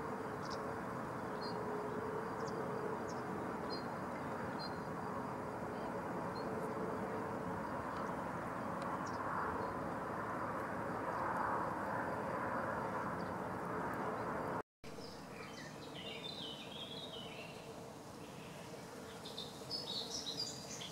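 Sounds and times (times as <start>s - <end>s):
small birds twittering: 15.0s - 20.9s.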